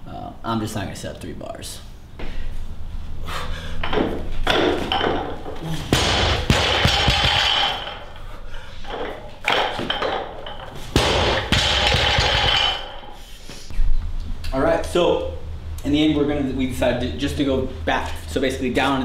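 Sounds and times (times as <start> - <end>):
barbell plates knocking and thudding: 3.8 - 8.2, 8.9 - 13.2.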